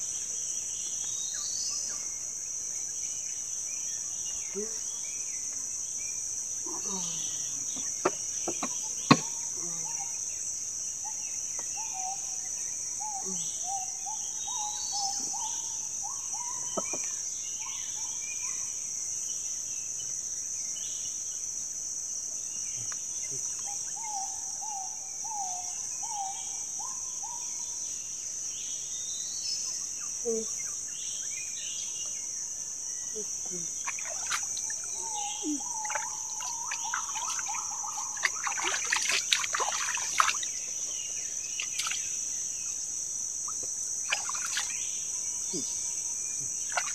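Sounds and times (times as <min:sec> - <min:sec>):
insect chorus: 0:00.0 - 0:46.9
sharp knocks: 0:07.8 - 0:09.3.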